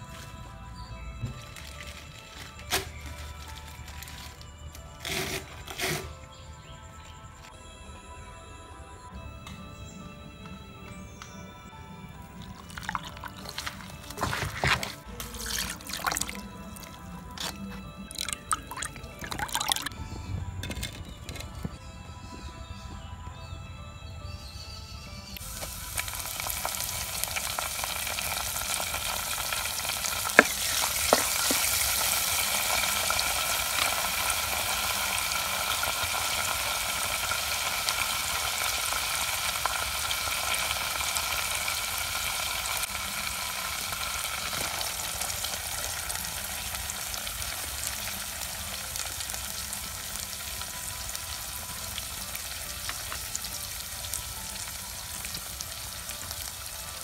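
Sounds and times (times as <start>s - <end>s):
onion frying in oil: 25.4s - 57.0s.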